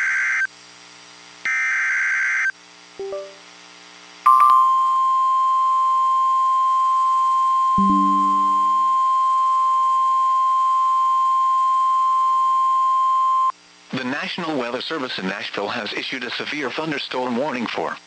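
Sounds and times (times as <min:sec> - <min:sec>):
low computer chime: 0:03.0 - 0:03.4, 0:07.8 - 0:09.1.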